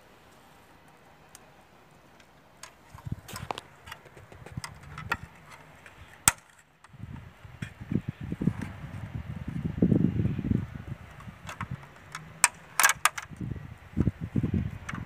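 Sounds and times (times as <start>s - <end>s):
small tools clicking and knocking: 2.1s - 7.0s, 11.1s - 13.4s
rustling and thumping handling noise: 2.6s - 7.8s.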